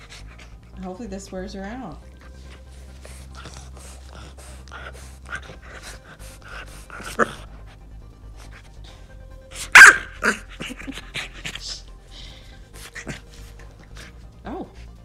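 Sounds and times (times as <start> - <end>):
puppy breathing hard: 0.0 - 15.0
puppy barking: 9.5 - 11.7.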